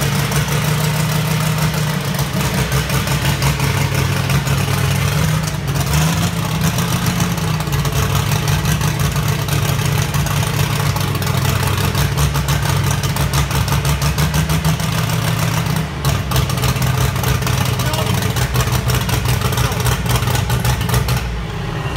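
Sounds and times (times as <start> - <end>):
tractor engine running: 0.0 - 21.9.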